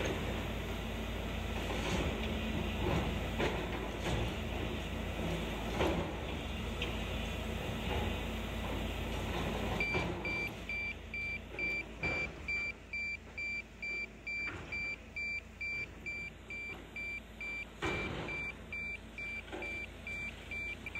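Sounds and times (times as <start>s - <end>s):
excavator diesel engine running: 0.0s - 20.9s
warning beeper short beeps: 9.8s - 20.9s.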